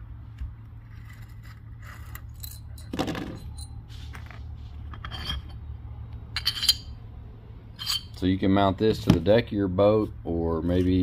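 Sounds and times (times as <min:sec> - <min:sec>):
metal parts clattering: 0:01.0 - 0:05.6, 0:06.4 - 0:06.9.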